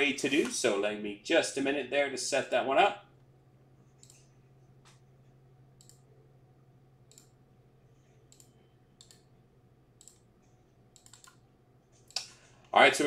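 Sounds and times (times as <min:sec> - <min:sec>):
low steady hum: 0:00.0 - 0:13.0
faint computer clicks: 0:04.0 - 0:05.0, 0:05.8 - 0:06.1, 0:07.0 - 0:07.4, 0:08.2 - 0:09.3, 0:10.0 - 0:12.4.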